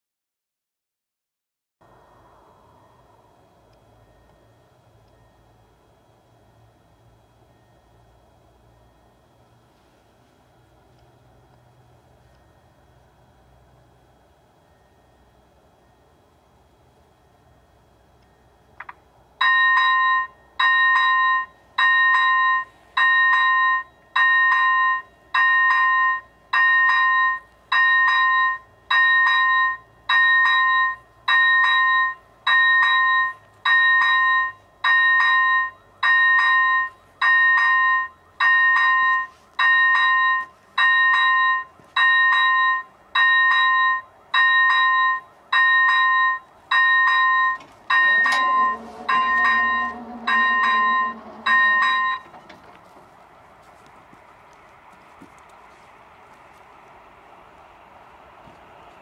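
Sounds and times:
level crossing bell ringing: 0:19.4 - 0:52.5.

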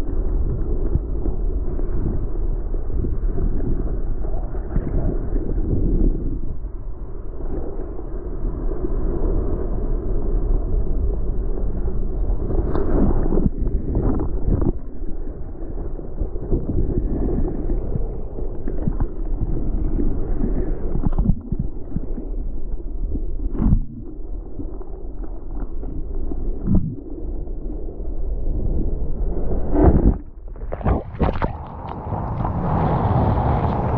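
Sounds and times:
wind on microphone: 0:00.0 - 0:33.9
water hitting camera: 0:29.7 - 0:33.9.

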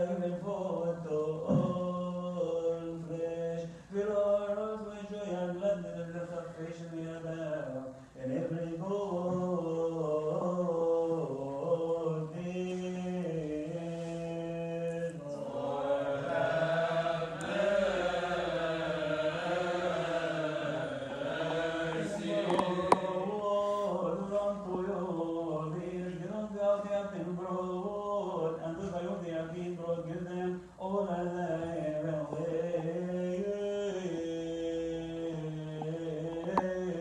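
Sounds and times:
voices chanting a hymn: 0:08.2 - 0:37.0.

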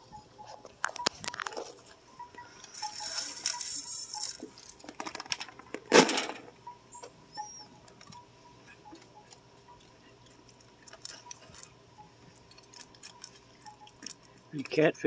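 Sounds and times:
raccoon crunching kibble: 0:00.8 - 0:01.9, 0:09.0 - 0:14.5.

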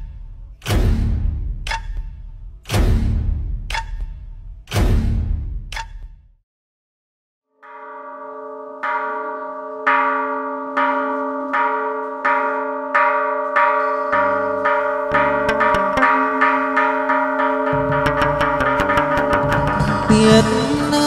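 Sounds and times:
low drum beats: 0:00.0 - 0:05.8, 0:15.1 - 0:16.2, 0:17.7 - 0:21.0
temple bell ringing: 0:07.6 - 0:21.0.

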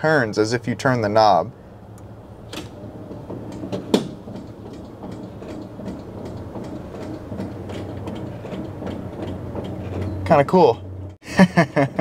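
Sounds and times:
wiper motor running: 0:01.0 - 0:11.2.

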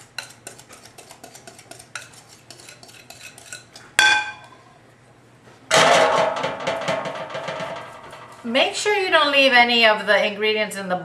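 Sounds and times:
utensil scraping batter in bowl: 0:00.0 - 0:04.0
whisk clattering against bowl: 0:00.0 - 0:04.2
sharp ringing clink: 0:04.0 - 0:04.6.

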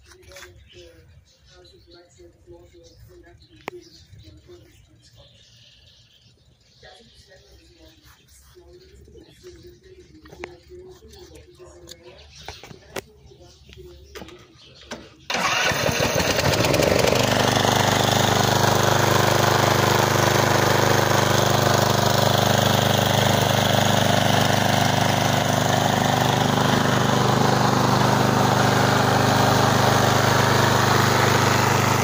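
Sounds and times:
mower engine starting and running: 0:14.7 - 0:32.0.

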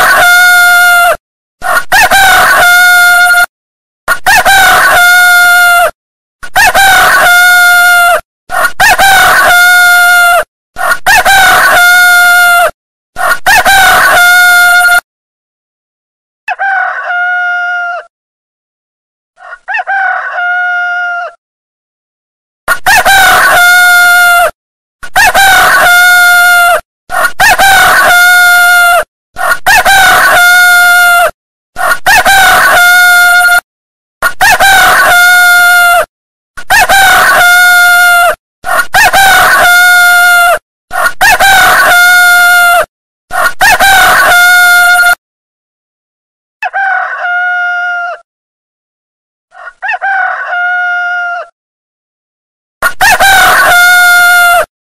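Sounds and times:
rooster crowing: 0:00.0 - 0:03.5, 0:04.3 - 0:05.9, 0:06.6 - 0:15.0, 0:16.5 - 0:18.1, 0:19.4 - 0:21.4, 0:22.7 - 0:24.5, 0:25.2 - 0:33.6, 0:34.3 - 0:36.1, 0:36.7 - 0:45.2, 0:46.6 - 0:48.3, 0:49.5 - 0:51.6, 0:52.8 - 0:54.7.

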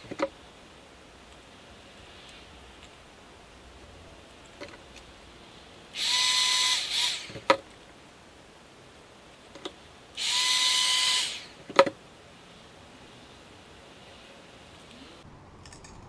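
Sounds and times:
hot air gun whining: 0:05.9 - 0:07.6, 0:10.1 - 0:11.8.

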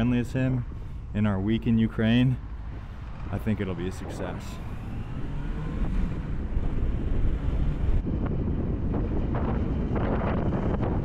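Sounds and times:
motorcycle and road rumble: 0:00.0 - 0:11.0
wind rushing over microphone: 0:02.4 - 0:11.0.

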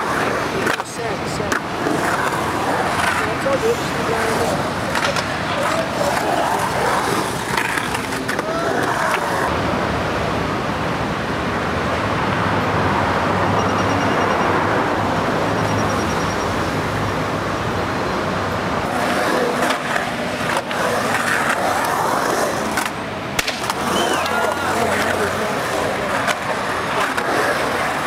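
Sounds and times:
skateboard clacks: 0:00.0 - 0:09.5, 0:18.8 - 0:28.0
skateboard wheels on rough pavement: 0:00.0 - 0:09.6, 0:18.6 - 0:28.0.

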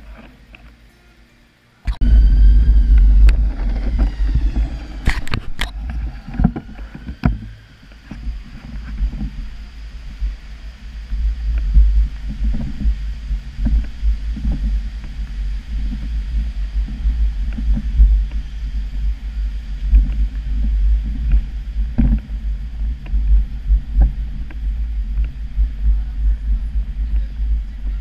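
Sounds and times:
wind buffeting microphone: 0:01.9 - 0:28.0
camera handling noise: 0:05.0 - 0:05.8.

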